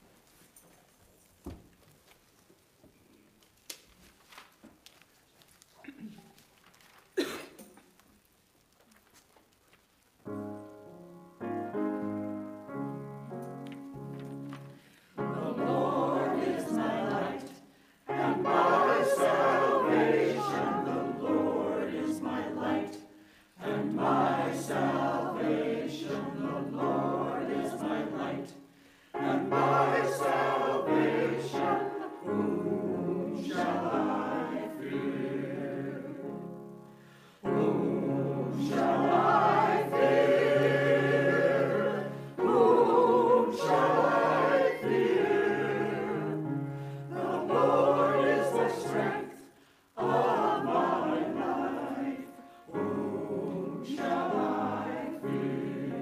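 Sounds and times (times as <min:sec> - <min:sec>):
women's choir singing: 0:14.2 - 0:56.0.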